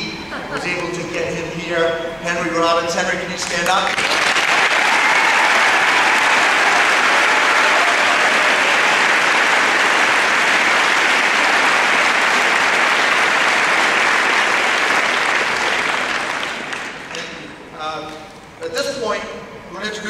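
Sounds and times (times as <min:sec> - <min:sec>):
crowd applauding: 0:03.4 - 0:17.5.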